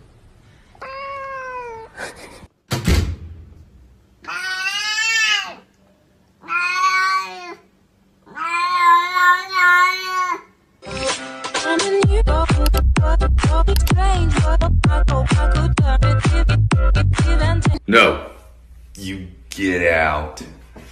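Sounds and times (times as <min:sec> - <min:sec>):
cat meowing: 0:00.8 - 0:01.9, 0:04.2 - 0:05.7, 0:06.4 - 0:10.5
thump: 0:02.7 - 0:03.6.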